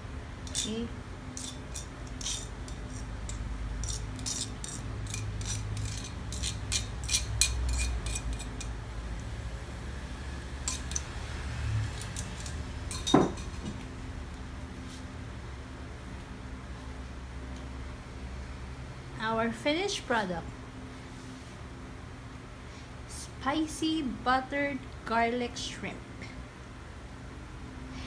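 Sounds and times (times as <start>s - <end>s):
metal tongs scraping ceramic bowl: 0.5s - 8.8s, 10.6s - 11.1s, 12.0s - 13.6s.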